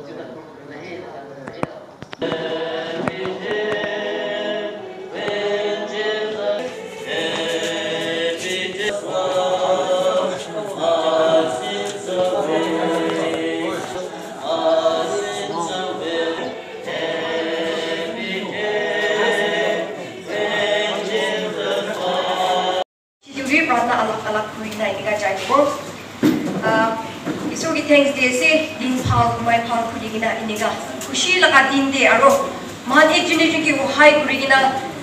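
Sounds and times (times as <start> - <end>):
choir singing: 2.2 - 22.9.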